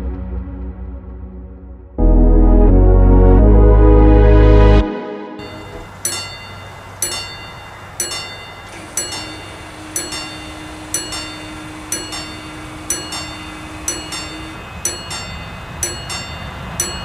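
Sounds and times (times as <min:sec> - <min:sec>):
level crossing warning bell: 0:05.4 - 0:17.0
low steady hum: 0:05.4 - 0:17.0.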